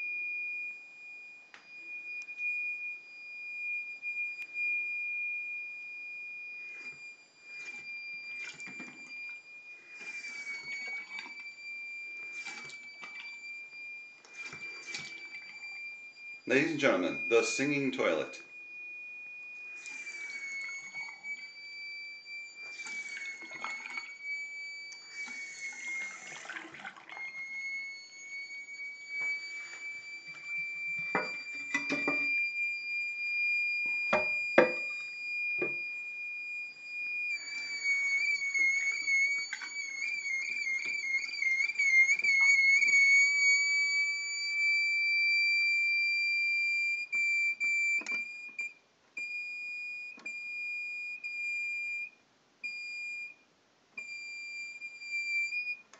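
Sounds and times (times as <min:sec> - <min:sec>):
toilet fill valve whistling: 0:00.0 - 0:53.4, 0:54.0 - 0:55.9
water hissing: 0:12.2 - 0:13.2.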